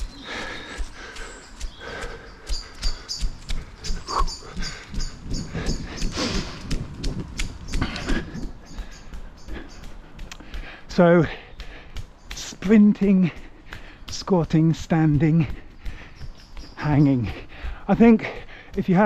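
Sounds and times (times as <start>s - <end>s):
dog panting: 0.3s - 6.5s
footsteps crunching on leaves: 2.9s - 19.0s.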